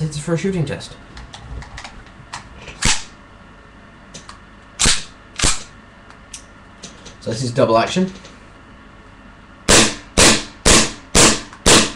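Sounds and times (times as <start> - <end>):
airsoft pistol shots: 4.8 - 5.7, 9.7 - 11.9.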